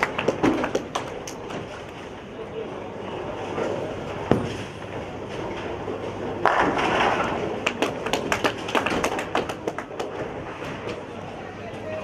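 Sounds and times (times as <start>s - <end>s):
bowling ball rolling: 3.3s - 11.1s.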